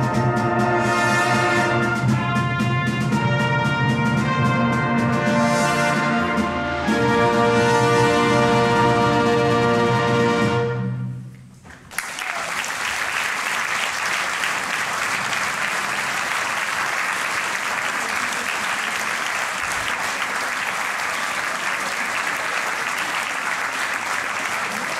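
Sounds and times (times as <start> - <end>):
brass band chord: 0.0 - 11.1
audience applause: 11.6 - 24.9.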